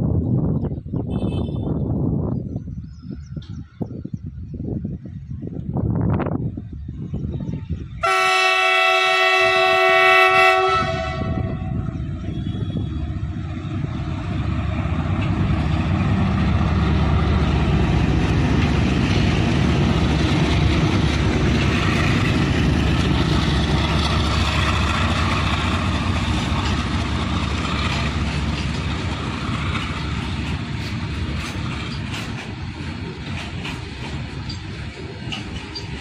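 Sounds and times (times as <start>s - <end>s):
diesel locomotive engine rumble: 0.0s - 36.0s
freight wagons rolling on rails: 12.0s - 36.0s.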